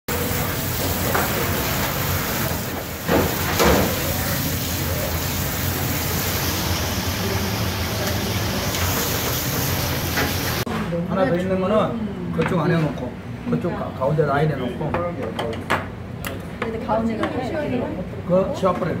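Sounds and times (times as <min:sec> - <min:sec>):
water spraying into metal sink: 0:00.1 - 0:10.7.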